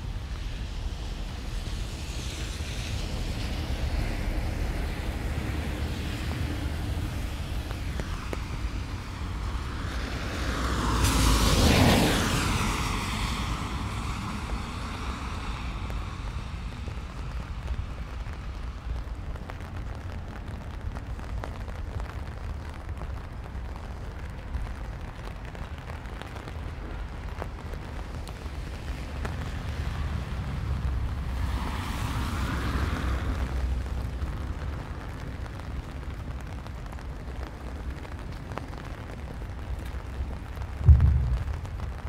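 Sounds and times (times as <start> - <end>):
light rain: 0.0 - 42.0
tyre hiss on wet street: 0.0 - 42.0
wind buffeting microphone: 38.3 - 42.0.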